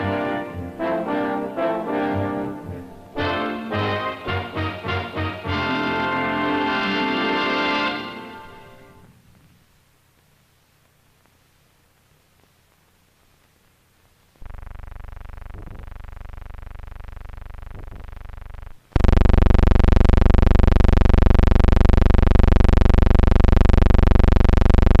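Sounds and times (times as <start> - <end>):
steady electric buzz: 14.3 - 25.0.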